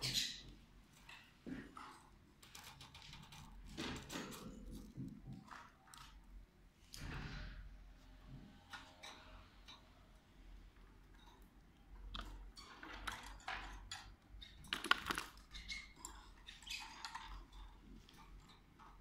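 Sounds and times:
birds clicking and rustling in cage: 0.0 - 7.4, 8.6 - 19.0.

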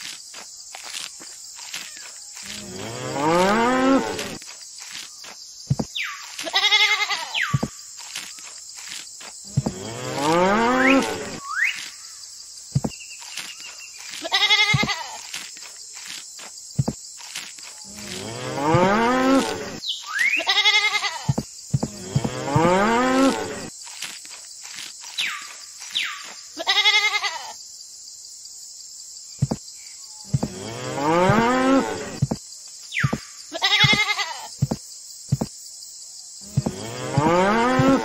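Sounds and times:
quavering bleats: 6.4 - 7.6, 14.2 - 15.2, 20.4 - 23.7, 26.6 - 27.6, 33.5 - 34.5
cow mooing: 17.9 - 19.8, 36.5 - 38.0.

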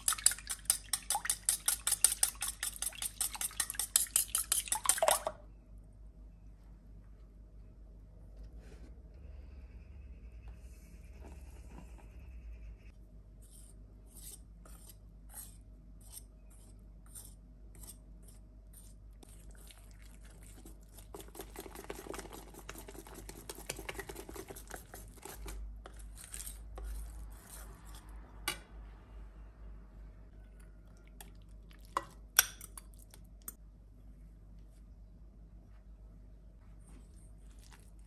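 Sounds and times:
whisk in steel bowl: 0.0 - 5.4, 16.1 - 25.6.

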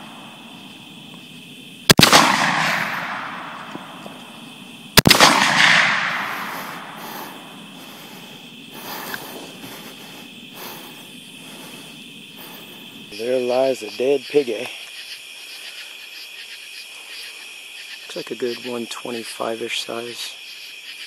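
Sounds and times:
rifle shots with rolling echo: 1.8 - 8.3.

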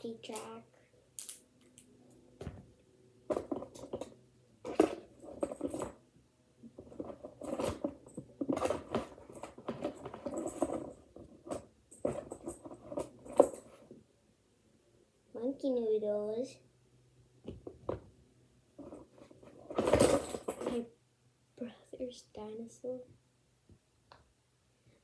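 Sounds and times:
rummaging through plastic toys: 3.3 - 6.0, 6.7 - 13.8, 18.8 - 20.9.

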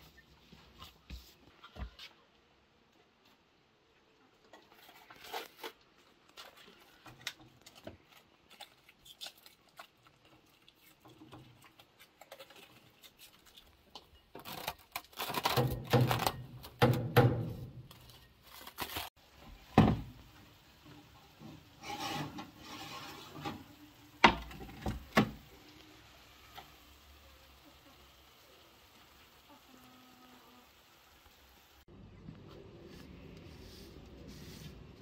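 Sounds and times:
cling film crinkling and rustling: 4.4 - 26.9.

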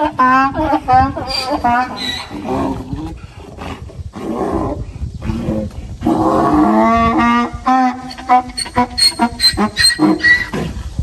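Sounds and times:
donkey braying: 0.0 - 2.9, 6.3 - 11.0.

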